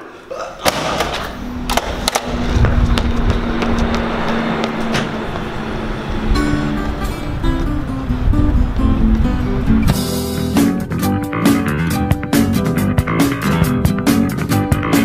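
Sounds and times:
steady low hum: 0:01.2 - 0:10.3
wind rumbling on microphone: 0:01.4 - 0:10.0.

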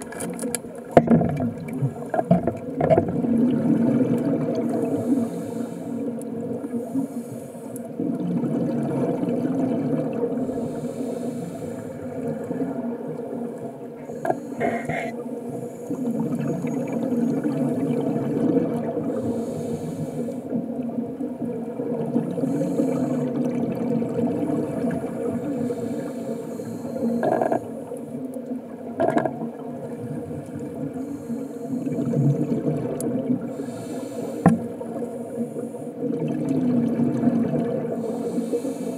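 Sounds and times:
diver breathing hiss: 0:04.8 - 0:07.9, 0:10.4 - 0:12.8, 0:14.0 - 0:16.2, 0:19.1 - 0:20.6, 0:22.4 - 0:23.3, 0:25.3 - 0:27.9, 0:30.9 - 0:32.2, 0:33.4 - 0:36.0, 0:37.9 - 0:38.9.

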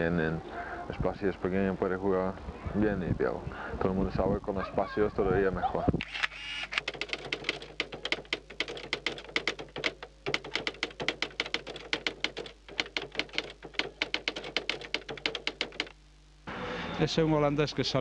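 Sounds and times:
rapid keyboard typing: 0:06.7 - 0:16.0.

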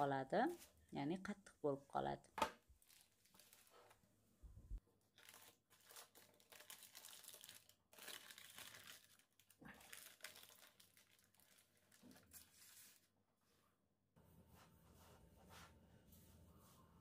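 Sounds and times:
paper crinkling and rustling: 0:02.8 - 0:04.0, 0:05.1 - 0:13.2.

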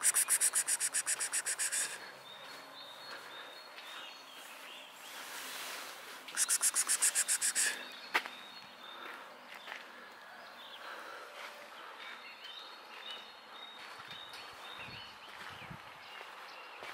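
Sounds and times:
bird rattling call: 0:00.0 - 0:02.0, 0:06.4 - 0:07.8
faint short chirps: 0:00.0 - 0:02.1, 0:06.3 - 0:07.9.

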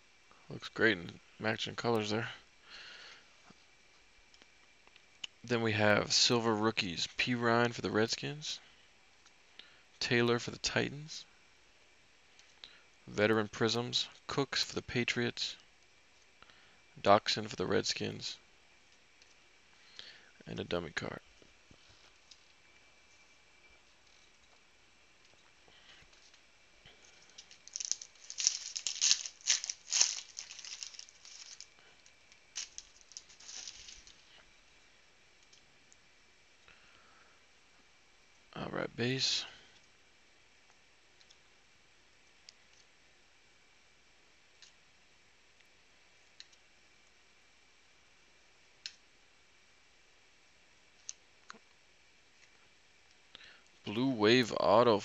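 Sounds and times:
foil wrapper tearing and crinkling: 0:27.3 - 0:31.8, 0:32.4 - 0:34.2.

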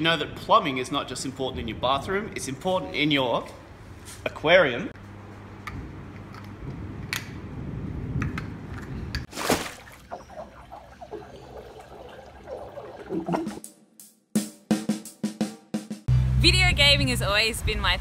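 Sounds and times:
aquarium water bubbling: 0:09.3 - 0:13.6.

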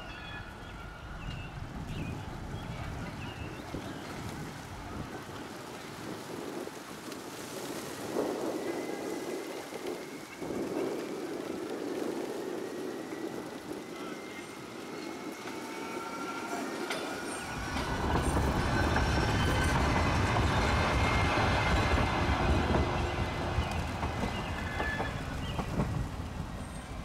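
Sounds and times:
streetcar running on rails: 0:00.0 - 0:27.0
wheels squealing faintly: 0:12.8 - 0:25.9.

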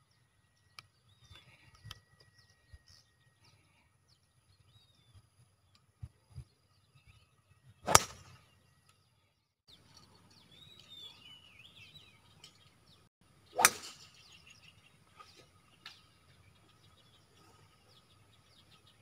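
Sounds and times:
faint bird chirps: 0:00.0 - 0:19.0
golf club striking ball: 0:07.9 - 0:08.3, 0:13.6 - 0:14.1.

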